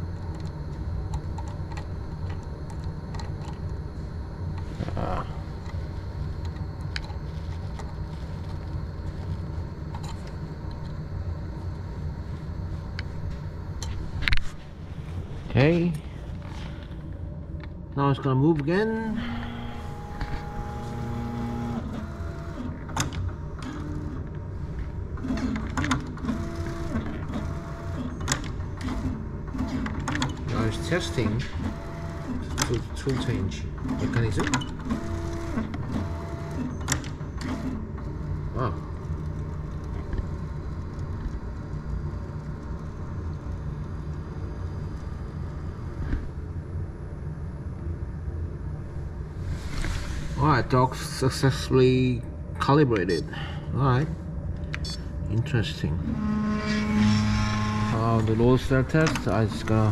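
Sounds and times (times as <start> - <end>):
stepper motors whining: 18.7 - 46.2, 55.6 - 59.9
faint high whine: 30.5 - 31.6, 40.4 - 59.9.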